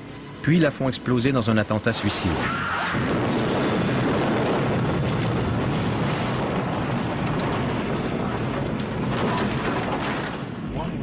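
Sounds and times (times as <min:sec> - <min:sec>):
bomb explosion rumble: 0:01.9 - 0:11.0.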